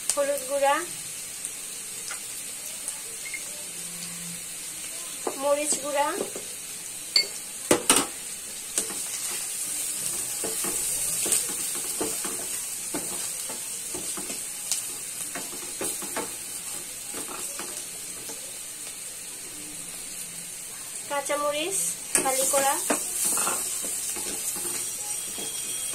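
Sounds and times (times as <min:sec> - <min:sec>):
onions sizzling in oil: 0:00.0 - 0:25.9
wooden spatula scraping pan: 0:22.6 - 0:25.9.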